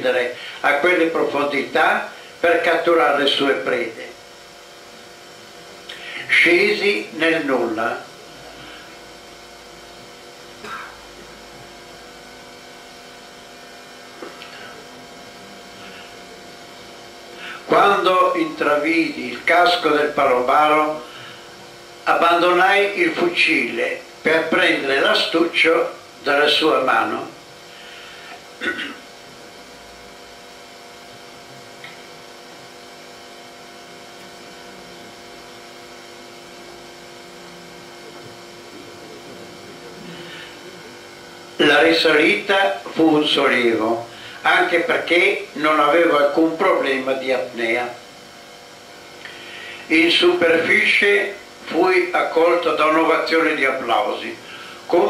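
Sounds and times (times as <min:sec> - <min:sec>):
electrical hum: 0:00.0 - 0:55.0
steady hiss: 0:13.0 - 0:29.5.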